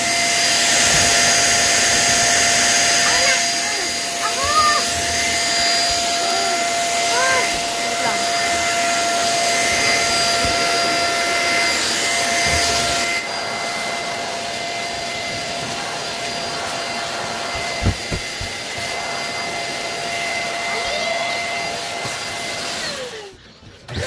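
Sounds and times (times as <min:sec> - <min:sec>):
handheld vacuum cleaner running: 0:00.0 - 0:24.0.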